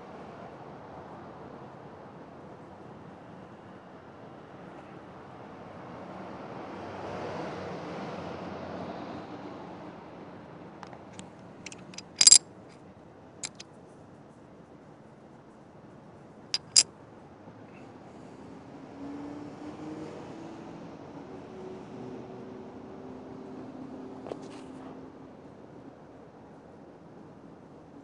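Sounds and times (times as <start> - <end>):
sharp hard clicks: 13.4 - 13.6.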